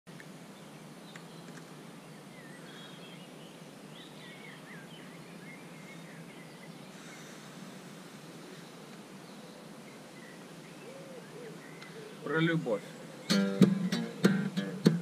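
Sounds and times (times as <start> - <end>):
steady background hiss: 0.1 - 15.0
bird chirps and trills: 9.3 - 15.0.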